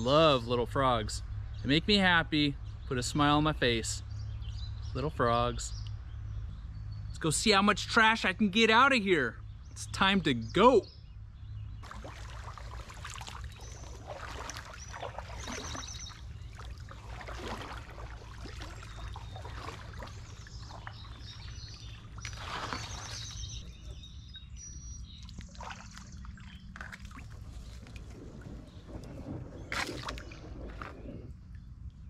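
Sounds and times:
birds chirping: 0.0 - 32.0
paddle dipping into water: 11.8 - 24.0, 25.2 - 31.7
water trickling and dripping: 11.8 - 24.4, 25.2 - 32.0
steady low rumble: 26.1 - 32.0.

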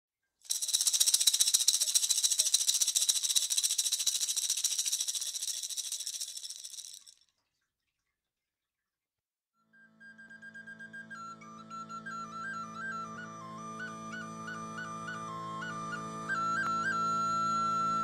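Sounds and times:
rapid hissy rattle: 0.5 - 7.1.

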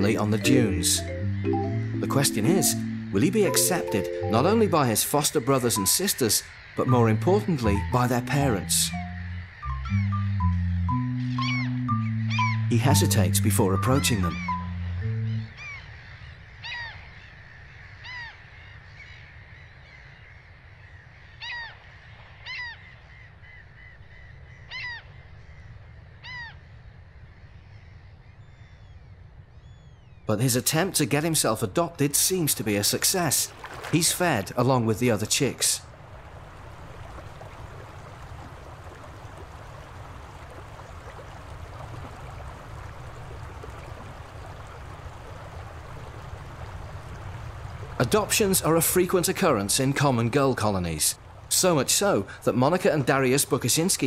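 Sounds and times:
gulls mewing calls: 0.0 - 17.0.

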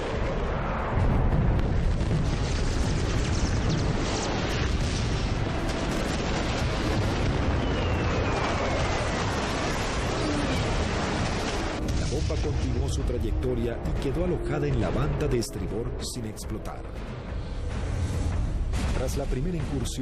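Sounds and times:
explosions: 0.0 - 14.1
jet noise rumble: 0.0 - 14.6.

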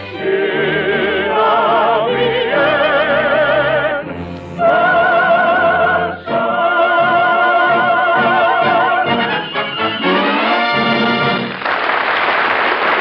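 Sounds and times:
operetta singing with vibrato: 0.0 - 9.2
orchestra: 0.0 - 11.8.

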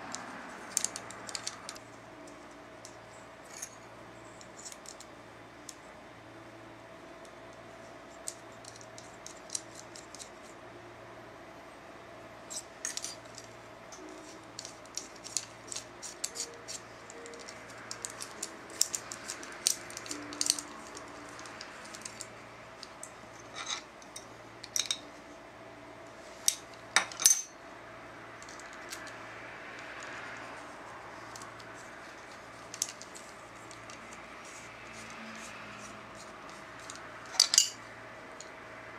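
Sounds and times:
metal parts clinking and clicking: 0.1 - 1.8, 2.8 - 3.8, 4.4 - 5.1, 8.2 - 10.4, 12.5 - 25.1, 26.4 - 27.6, 31.2 - 37.8.

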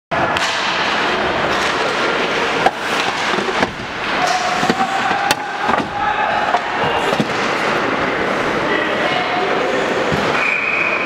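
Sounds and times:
crowd and rink noise: 0.1 - 11.0
hockey sticks and puck cracking: 0.2 - 8.0.

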